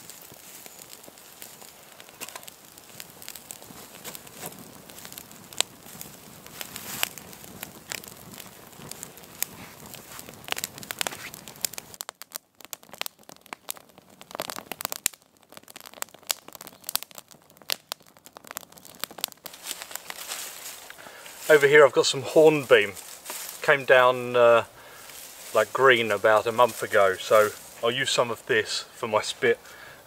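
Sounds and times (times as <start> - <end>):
background hiss: 0.0 - 11.9, 19.4 - 30.0
wood snapping and popping: 0.0 - 21.5, 22.5 - 23.6
campfire crackling: 0.0 - 30.0.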